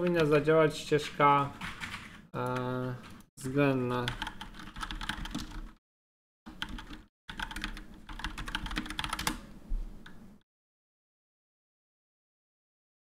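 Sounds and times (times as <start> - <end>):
typing on a keyboard: 4.0 - 5.8, 6.5 - 9.4.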